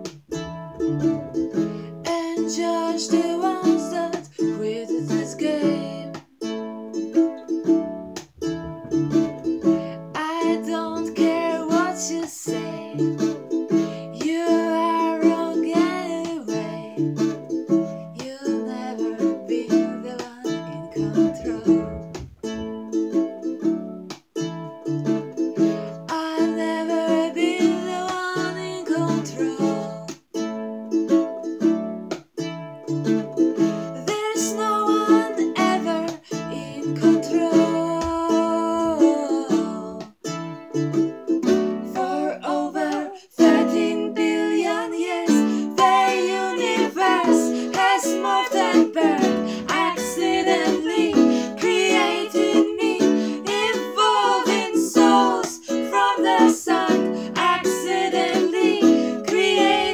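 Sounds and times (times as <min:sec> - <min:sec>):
strummed acoustic guitars: 0:00.0 - 0:04.4, 0:05.3 - 0:14.4, 0:20.1 - 0:26.3, 0:44.6 - 0:59.9
women singing together: 0:02.0 - 0:06.2, 0:10.1 - 0:13.1, 0:14.2 - 0:17.0, 0:18.2 - 0:22.0, 0:26.1 - 0:30.2, 0:34.1 - 0:40.0, 0:41.9 - 0:59.9.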